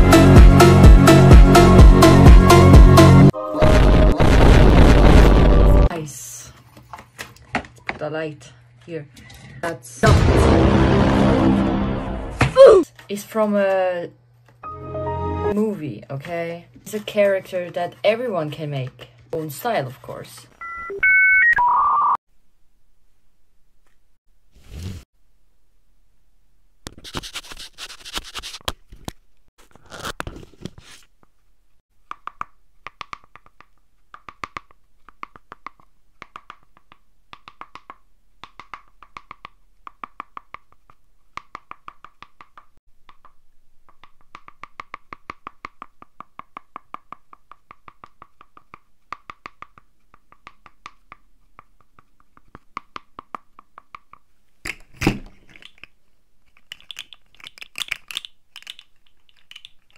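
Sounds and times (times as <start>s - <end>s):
light paper clicks and taps: 43.9s - 54.8s.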